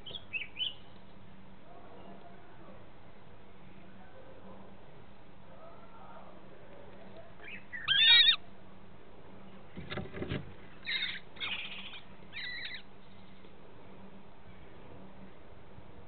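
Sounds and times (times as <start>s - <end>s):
kestrels calling: 0.0s - 1.0s, 7.4s - 8.4s, 10.7s - 13.5s.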